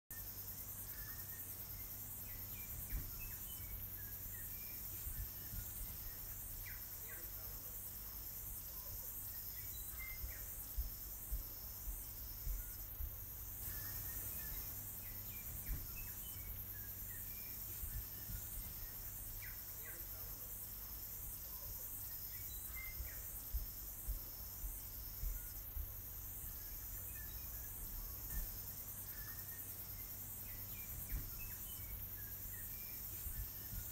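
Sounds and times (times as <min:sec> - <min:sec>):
faint bird chirps: 0:00.1 - 0:33.9
insects chirping: 0:00.1 - 0:33.9
soft low bumps: 0:02.2 - 0:06.5, 0:10.1 - 0:19.3, 0:29.9 - 0:33.9.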